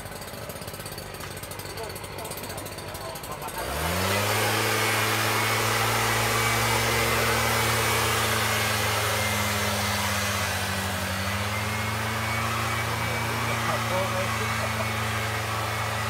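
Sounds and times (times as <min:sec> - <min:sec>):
two-stroke engine running: 0:00.0 - 0:16.0.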